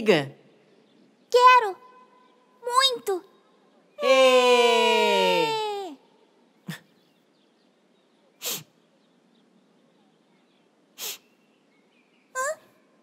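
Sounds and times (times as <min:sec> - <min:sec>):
cartoon sniffles: 0:08.4 - 0:08.8, 0:11.0 - 0:11.3.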